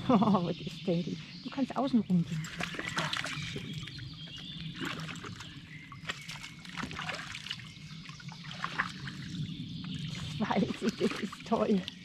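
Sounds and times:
stream water trickling: 0.0s - 12.0s
short sharp splashes: 6.0s - 7.7s.

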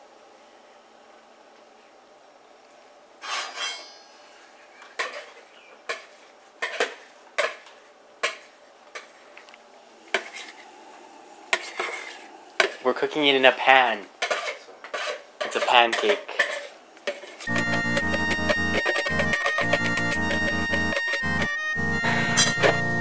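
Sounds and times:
utensil knocking against bowl and pan: 14.2s - 17.2s.

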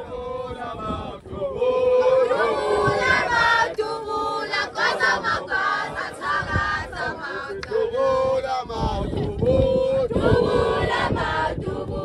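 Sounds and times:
crowd singing: 0.0s - 12.0s.

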